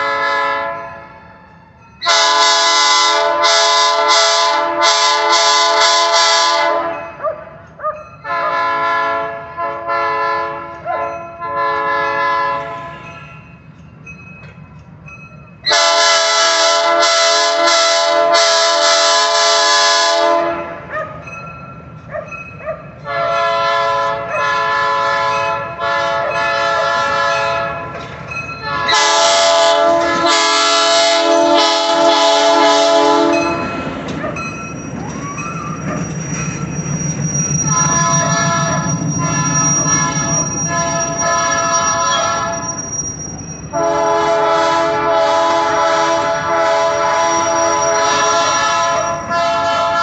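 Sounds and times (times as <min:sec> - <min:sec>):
train air horn blasts: 0:00.0 - 0:01.0, 0:02.0 - 0:07.2, 0:08.2 - 0:13.2, 0:15.7 - 0:20.9, 0:23.0 - 0:27.9, 0:28.7 - 0:33.7, 0:37.6 - 0:42.8, 0:43.7 - 0:50.0
locomotive engine rumbling: 0:00.0 - 0:50.0
high wheel squeal: 0:33.4 - 0:44.3, 0:46.2 - 0:49.6.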